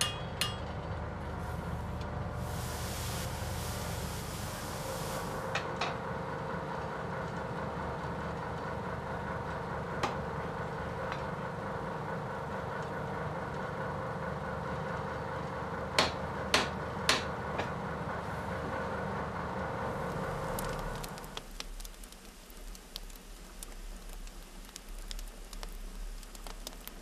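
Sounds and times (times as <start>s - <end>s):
hammer striking hot iron: 0.0s - 0.7s
steady mechanical hum: 0.0s - 27.0s.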